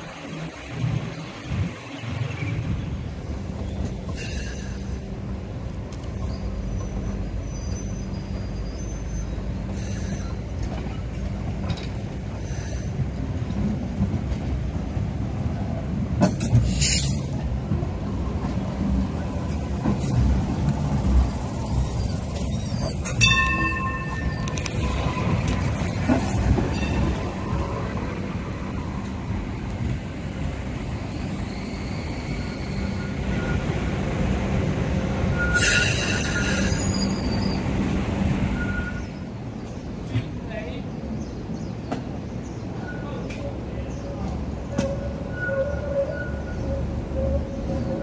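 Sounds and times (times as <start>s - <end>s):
light rail car rumbling over track: 0.0s - 48.0s
wheel squeal: 31.4s - 33.7s, 35.3s - 37.8s, 38.6s - 39.2s, 44.7s - 48.0s.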